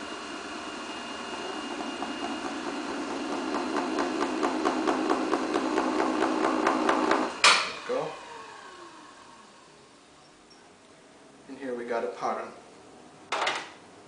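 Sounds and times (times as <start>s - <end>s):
wheel motor hum: 0.0s - 10.0s.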